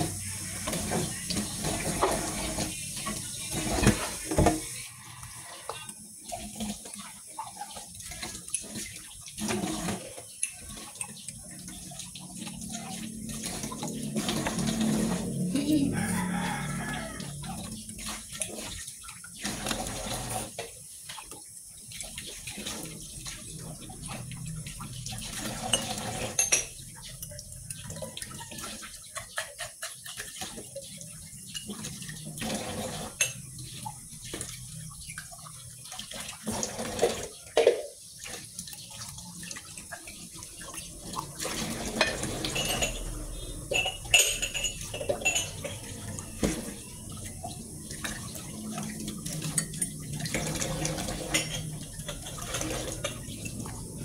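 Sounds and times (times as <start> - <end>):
tap water running into sink: 0.0 - 54.0
dishes clinking and knocking: 25.4 - 26.9, 37.5 - 38.0, 41.6 - 46.9, 50.4 - 53.7.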